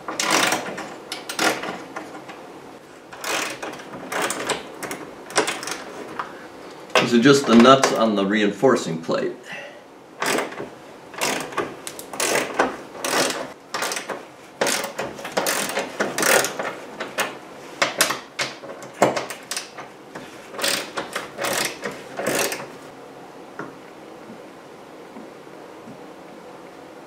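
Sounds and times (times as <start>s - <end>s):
ratchet wrench clicking: 0.2s - 1.7s, 3.2s - 5.8s, 11.2s - 16.6s, 20.6s - 22.6s.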